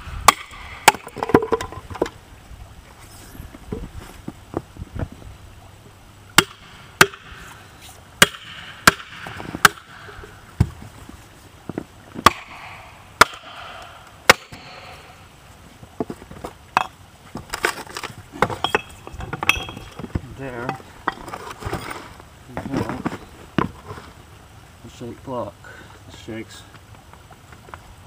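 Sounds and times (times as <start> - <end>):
wood cracking and creaking: 16.0 - 24.1.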